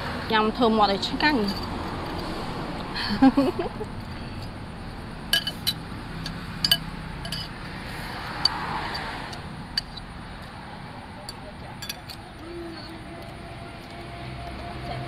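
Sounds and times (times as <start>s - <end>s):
metal cutlery clinking on bowls: 5.3s - 7.5s, 11.2s - 13.0s.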